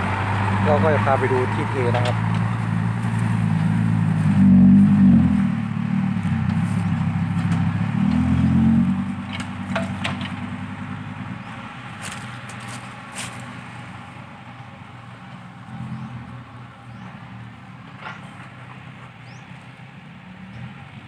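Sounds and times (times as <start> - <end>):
dump truck diesel engine: 0.0 - 21.0.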